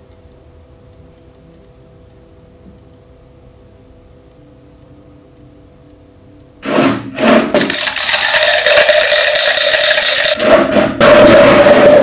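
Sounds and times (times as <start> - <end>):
faint hum: 0.0 - 7.5
liquid being mixed in glass jar: 7.4 - 10.6.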